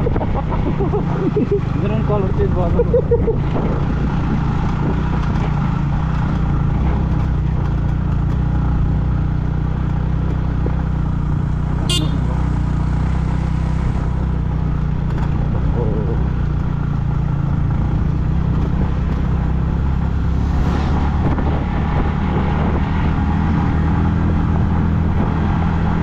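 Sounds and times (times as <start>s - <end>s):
motorcycle engine running: 0.0s - 26.0s
steady rushing noise: 19.6s - 23.3s.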